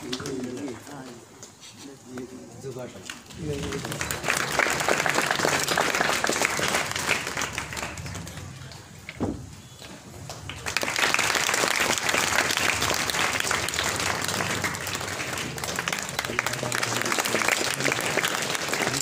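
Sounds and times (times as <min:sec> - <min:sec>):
audience clapping: 0:00.0 - 0:01.2, 0:03.0 - 0:09.2, 0:09.8 - 0:19.0
single thump: 0:09.1 - 0:09.6.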